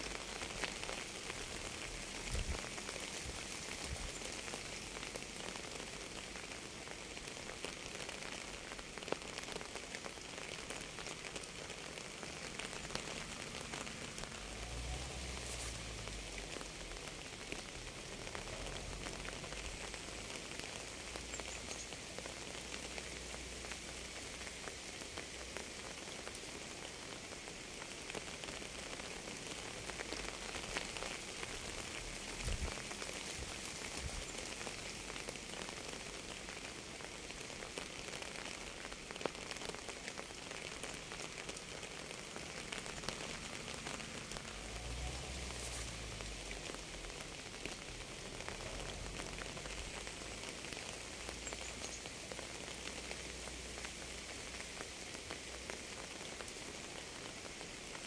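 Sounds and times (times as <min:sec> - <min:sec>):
steady rain falling: 0:00.0 - 0:58.0.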